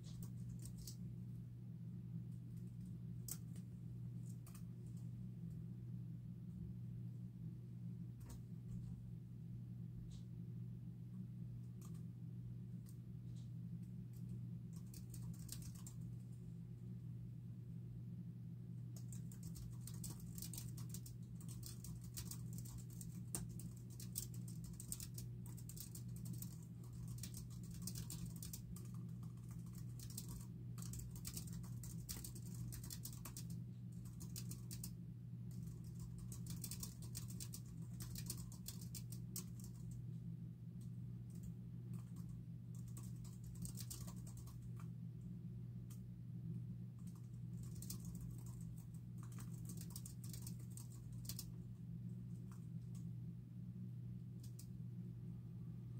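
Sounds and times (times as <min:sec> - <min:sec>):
steady low hum: 0:00.0 - 0:55.9
fast typing on keyboard: 0:14.7 - 0:16.1, 0:19.0 - 0:40.0, 0:41.3 - 0:44.9, 0:47.0 - 0:51.6.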